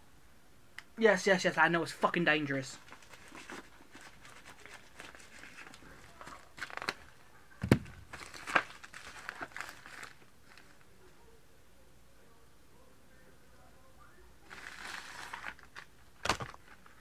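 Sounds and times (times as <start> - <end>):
plastic bag crinkling and tearing: 2.8 - 10.8, 14.5 - 17.0.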